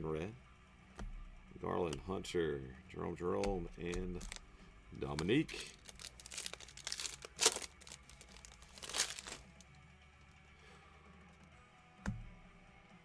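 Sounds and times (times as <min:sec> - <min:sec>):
foil wrapper tearing and crinkling: 0:04.2 - 0:04.4, 0:05.5 - 0:09.6.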